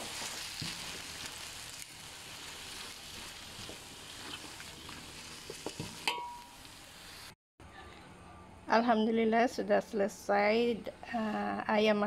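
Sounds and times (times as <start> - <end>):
spatula scraping a pan: 0.0 - 6.2
food sizzling in a wok: 0.0 - 7.4.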